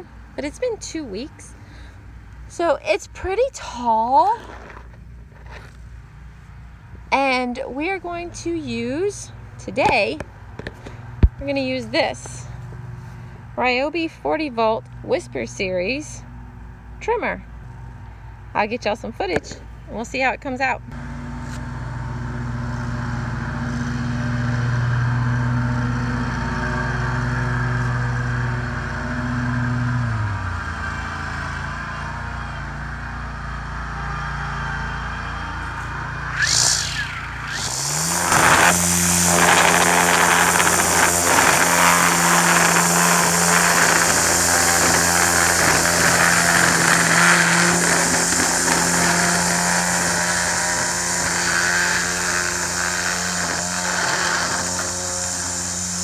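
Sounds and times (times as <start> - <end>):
mower engine running: 0.0 - 5.9, 19.0 - 56.0
string trimmer humming: 20.9 - 56.0
trimmer line hissing through grass: 35.7 - 56.0.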